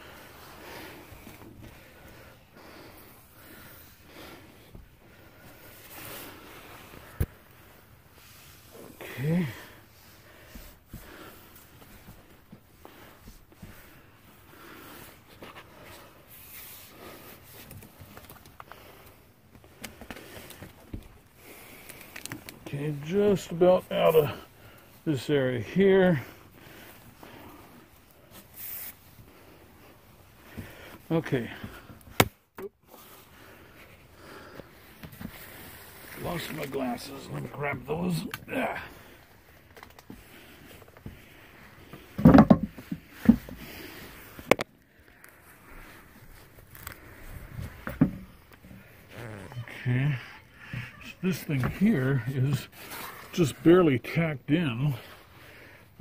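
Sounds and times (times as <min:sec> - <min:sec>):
thumps on attic boards: 0:42.2 - 0:43.6.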